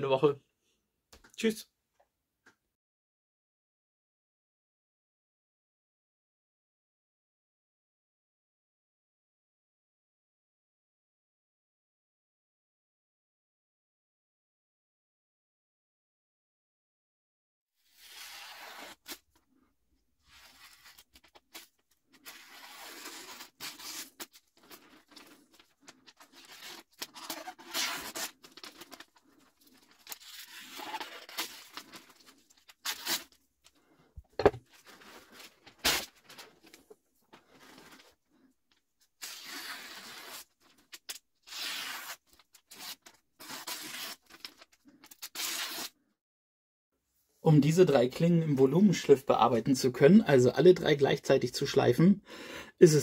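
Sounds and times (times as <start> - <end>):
knife slicing paper: 17.9 - 19.2, 20.3 - 25.4, 26.2 - 29.1, 39.2 - 40.5, 41.5 - 45.9.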